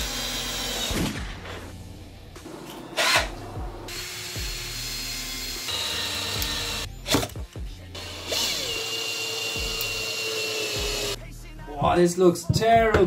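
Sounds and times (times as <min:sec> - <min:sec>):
cordless drill motor whine: 0:08.0 - 0:11.2.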